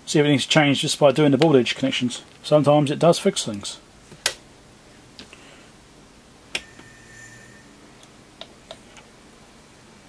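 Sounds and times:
faint high tone: 6.6s - 8.2s.

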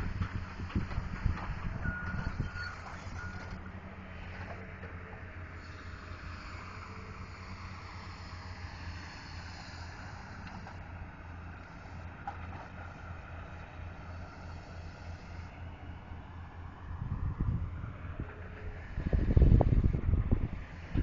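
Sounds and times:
wind buffeting microphone: 0.0s - 3.4s, 16.9s - 21.0s
road noise: 0.0s - 21.0s
vehicle engine drone: 0.0s - 21.0s.

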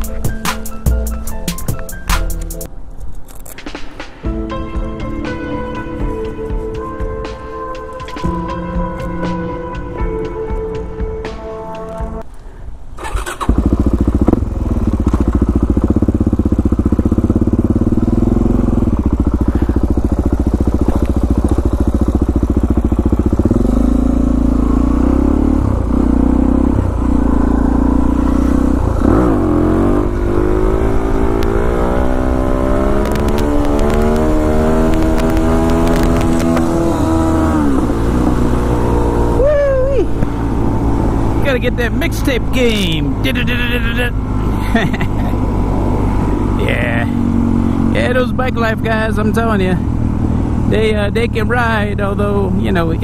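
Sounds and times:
motorcycle engine idling and accelerating: 0.0s - 53.0s.

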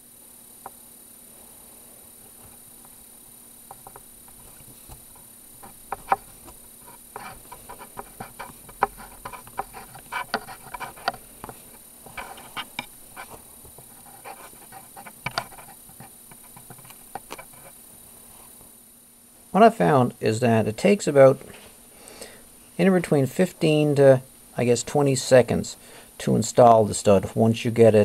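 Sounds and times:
tool clicking and scraping: 3.7s - 17.8s.

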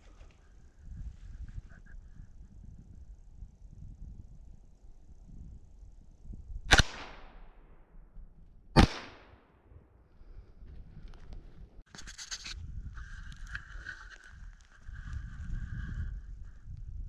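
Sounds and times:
rifle shots: 6.7s - 7.6s, 8.8s - 9.4s.

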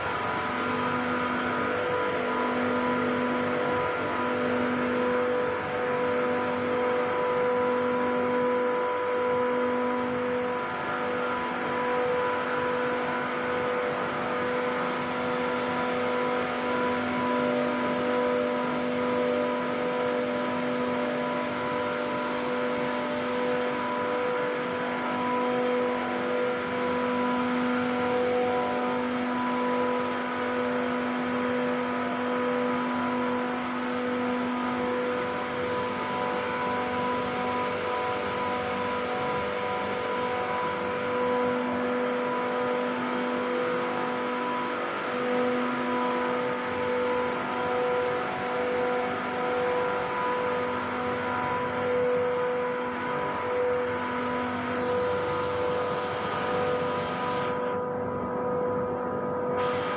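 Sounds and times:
compressor tonal hum: 0.0s - 59.9s.

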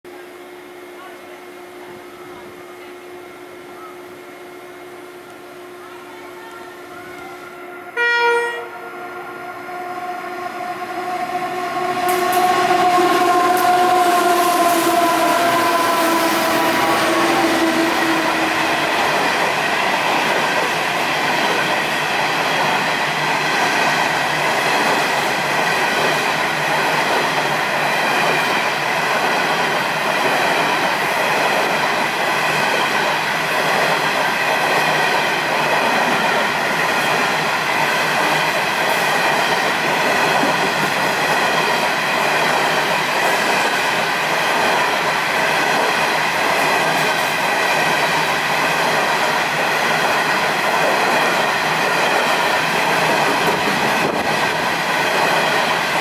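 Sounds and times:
diesel locomotive engine hum: 0.1s - 56.0s
train horn blast: 7.2s - 18.7s
train wagons rolling: 45.4s - 56.0s.

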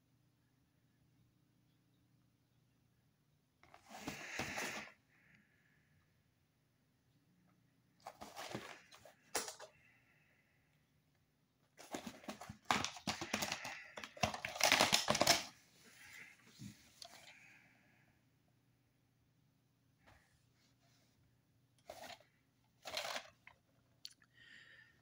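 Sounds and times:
plastic case clicking and rattling: 8.0s - 9.7s, 11.8s - 15.5s, 22.8s - 23.5s.

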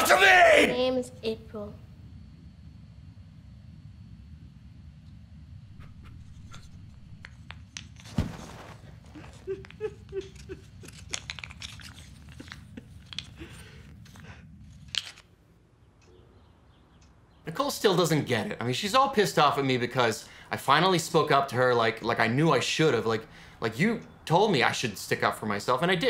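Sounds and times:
low room hum: 0.0s - 26.0s
paper crinkling and tearing: 10.2s - 15.3s.

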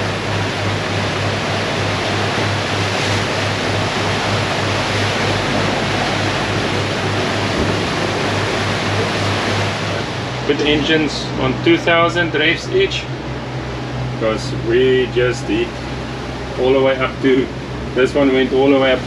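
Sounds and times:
diesel engines pulsing drone: 0.0s - 19.0s
rushing foaming wake water: 0.0s - 19.0s
strong wind: 0.0s - 19.0s.

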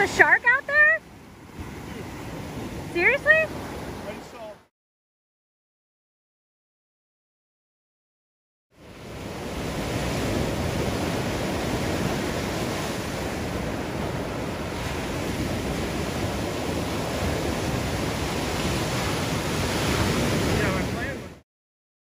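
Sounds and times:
ocean surf breaking on beach: 0.0s - 4.7s, 8.8s - 21.4s.

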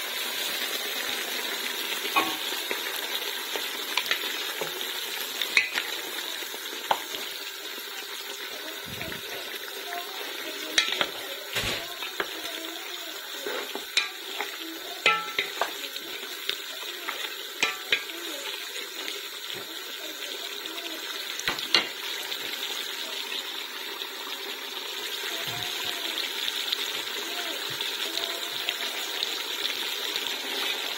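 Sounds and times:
meat sizzling in a pot: 0.0s - 30.9s
wooden spoon knocking on pot: 2.2s - 2.6s, 14.0s - 15.8s, 17.6s - 18.1s.

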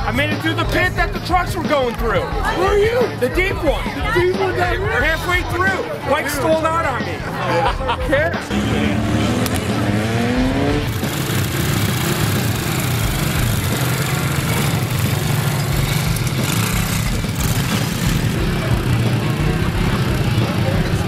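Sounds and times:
off-road vehicle engine revving: 8.3s - 21.0s.

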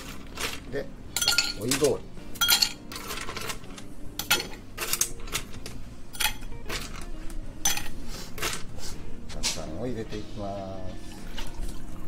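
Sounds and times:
ice cubes clinking into glass: 1.2s - 3.6s.

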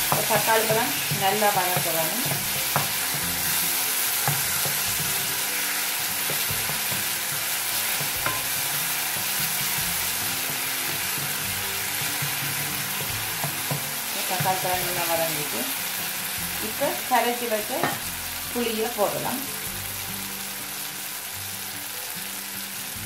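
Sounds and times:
vegetables sizzling in oil: 0.0s - 23.0s
wooden spoon knocking pan: 0.1s - 3.2s, 4.2s - 5.2s, 6.2s - 8.6s, 11.2s - 15.0s, 17.8s - 18.0s.

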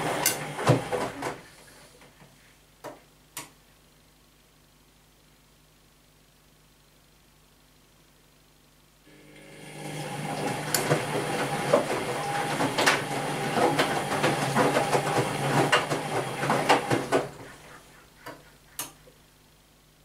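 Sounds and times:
wet laundry tumbling with knocks: 0.0s - 1.5s, 9.8s - 17.7s
washing machine motor hum: 0.0s - 1.8s, 9.1s - 19.1s.

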